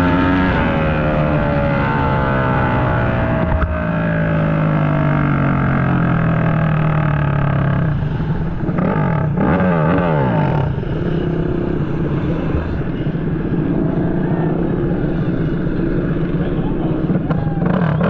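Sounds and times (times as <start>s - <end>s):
racing motorcycle engine revving: 0.0s - 18.0s.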